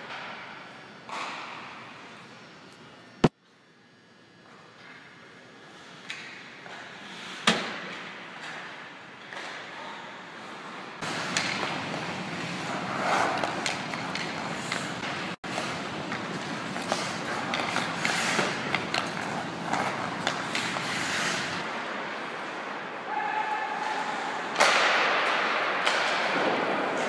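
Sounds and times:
skates scraping on ice: 0:10.4 - 0:21.9
sticks striking pucks: 0:11.0 - 0:21.6, 0:23.8 - 0:27.0.

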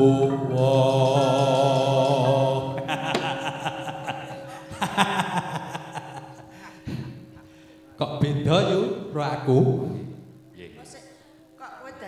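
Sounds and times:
man singing long note with vibrato: 0:00.0 - 0:04.6
people laughing: 0:02.2 - 0:07.6
faint ringing tones: 0:02.8 - 0:12.0.

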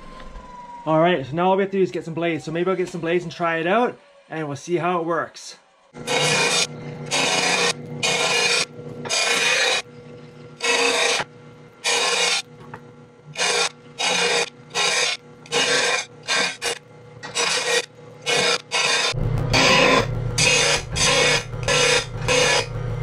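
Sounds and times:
grinding wheel on steel blade: 0:06.0 - 0:12.5, 0:13.2 - 0:23.0
motor humming: 0:06.0 - 0:23.0.

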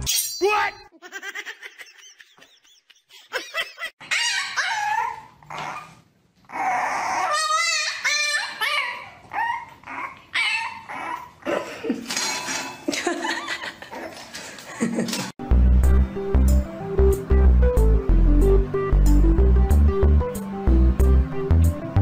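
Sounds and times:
dog whining and yipping: 0:04.0 - 0:11.4.

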